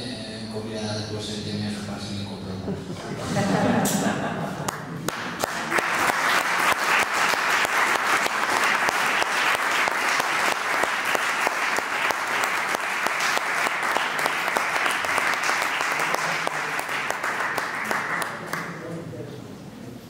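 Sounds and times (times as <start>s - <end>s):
audience applauding: 4.7s - 18.9s.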